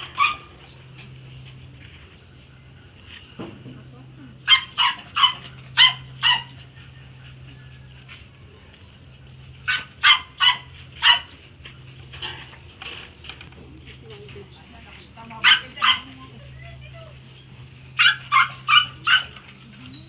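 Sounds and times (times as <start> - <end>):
dog yelping: 0.0 - 0.6, 4.4 - 6.9, 9.6 - 11.4, 15.3 - 20.0.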